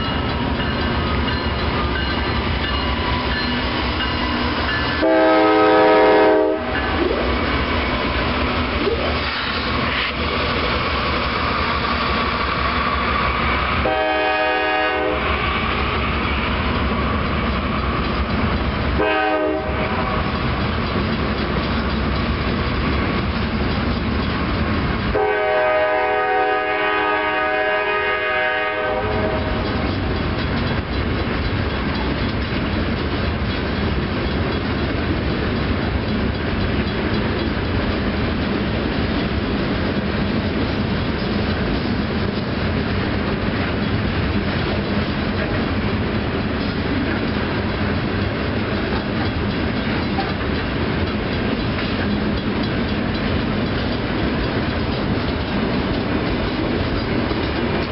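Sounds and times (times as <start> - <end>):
train wheels on rails: 0.0 - 57.9
locomotive air horn: 5.0 - 7.3, 13.8 - 15.4, 19.0 - 20.2, 25.1 - 29.6.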